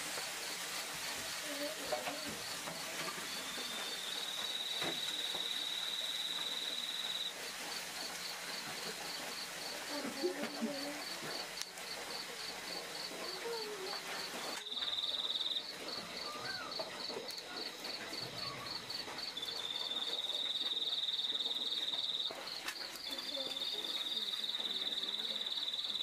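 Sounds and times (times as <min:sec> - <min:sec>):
cricket chirping: 0:01.3 - 0:26.0.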